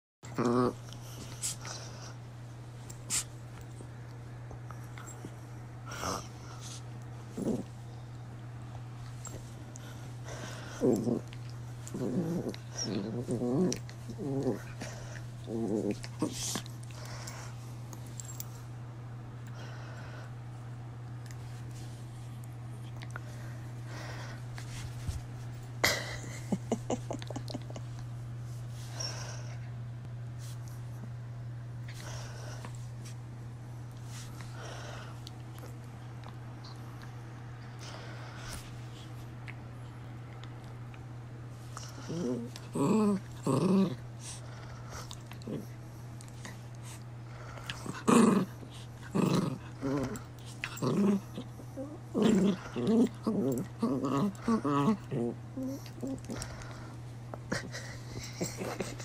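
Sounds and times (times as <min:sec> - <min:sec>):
dog growling: 0:00.2 - 0:02.1, 0:05.9 - 0:07.8, 0:09.8 - 0:17.5, 0:41.8 - 0:45.8, 0:47.3 - 0:59.0
steady low hum: 0:00.2 - 0:59.0
dog grunting: 0:00.3 - 0:00.8, 0:47.7 - 0:56.9.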